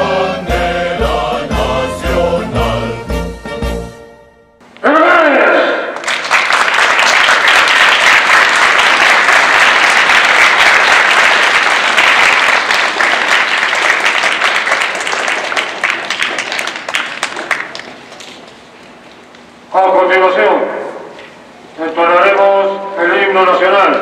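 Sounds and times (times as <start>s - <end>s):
children applauding: 6.0s - 18.4s.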